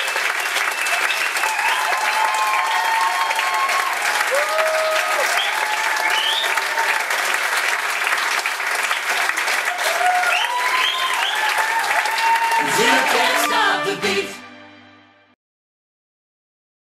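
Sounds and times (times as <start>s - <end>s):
audience applauding: 0.0s - 14.3s
crowd cheering and shouting: 1.4s - 7.2s, 9.6s - 14.3s.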